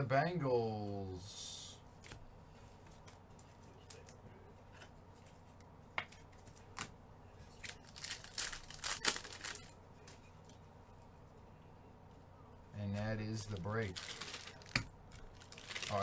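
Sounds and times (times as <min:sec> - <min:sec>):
wrapper crinkling and tearing: 0:07.6 - 0:09.8, 0:13.8 - 0:16.0.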